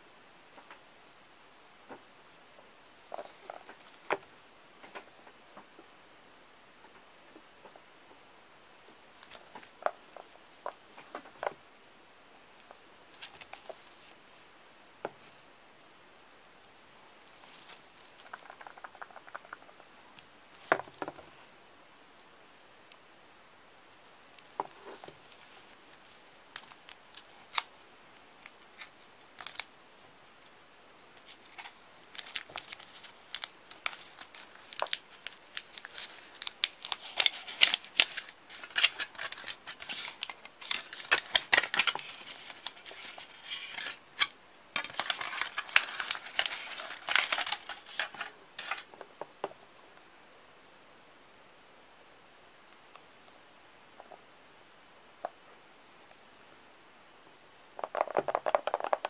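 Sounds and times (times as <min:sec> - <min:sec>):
foil wrapper crinkling: 0:24.5 - 0:29.7, 0:31.2 - 0:48.9.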